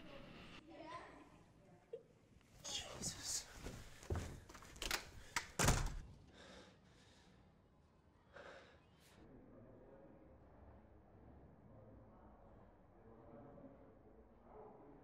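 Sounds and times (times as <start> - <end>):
soft breath: 6.3 - 9.2.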